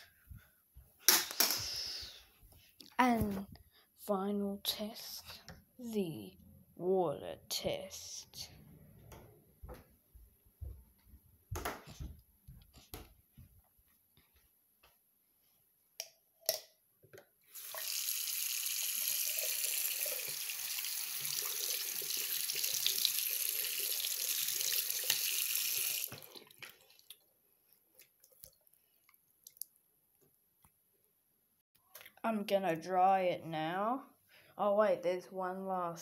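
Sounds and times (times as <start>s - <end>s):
tap water pouring over plastic: 17.5s - 27.2s.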